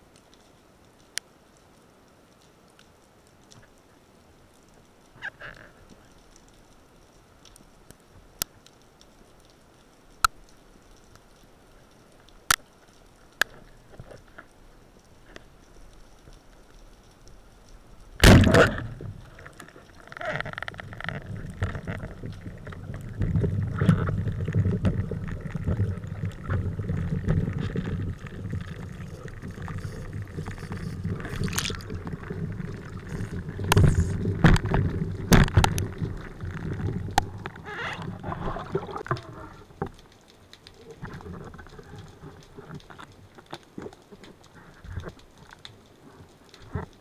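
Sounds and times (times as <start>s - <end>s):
rumbling sloshing underwater noise: 17.8s - 43.4s
speargun firing crack: 18.2s - 18.9s.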